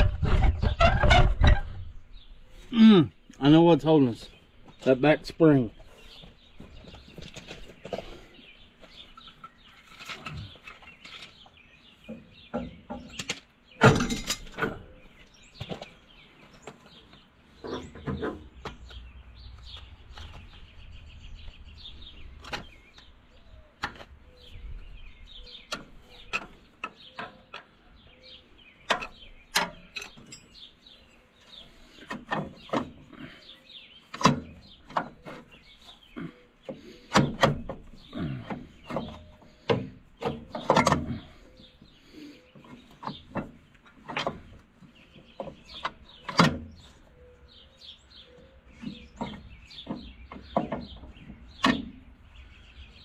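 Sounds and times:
tools and metal parts clinking: 0:12.9 - 0:14.8, 0:28.9 - 0:30.7.

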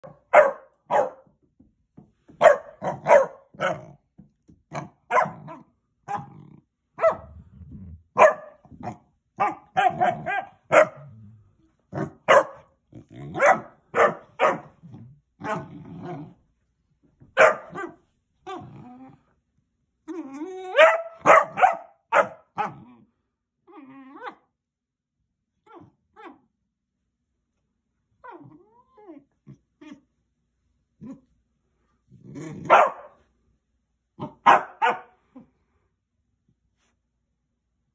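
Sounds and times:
puppy barking in high yaps: 0:00.0 - 0:01.2, 0:02.4 - 0:03.8, 0:05.1 - 0:05.4, 0:08.2 - 0:08.6, 0:09.4 - 0:11.0, 0:12.3 - 0:12.7, 0:13.4 - 0:14.7, 0:17.4 - 0:18.0, 0:20.7 - 0:22.8, 0:32.7 - 0:33.2, 0:34.2 - 0:35.1.

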